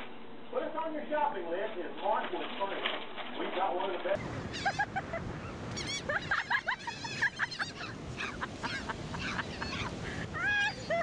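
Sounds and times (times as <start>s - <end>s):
gulls squawking: 4.2s - 11.0s.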